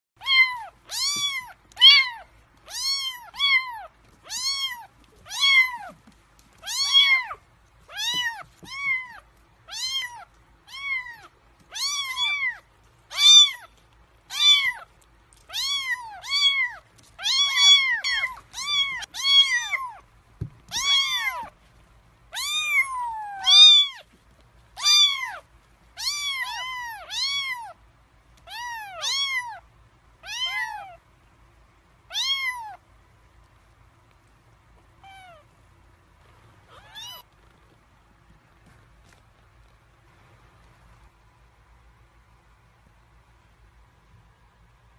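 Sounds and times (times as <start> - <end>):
kittens meowing: 0.2 - 6.0, 6.6 - 13.7, 14.3 - 20.0, 20.6 - 21.6, 22.4 - 24.1, 24.8 - 25.4, 26.0 - 27.8, 28.5 - 29.6, 30.2 - 31.0, 32.1 - 32.8, 36.6 - 37.3.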